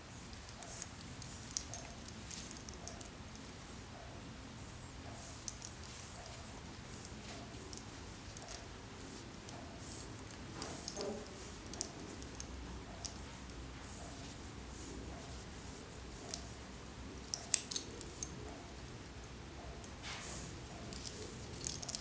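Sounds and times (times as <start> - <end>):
bridle hardware clinking: 0.3 - 3.4, 5.1 - 14.4, 17.2 - 19.0, 19.8 - 22.0.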